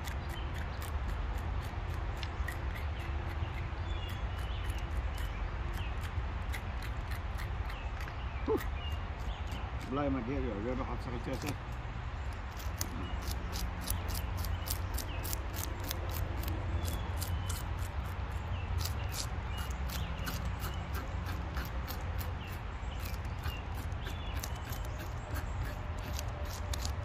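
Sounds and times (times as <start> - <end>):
fork scraping fish scales: 12.5 - 27.0.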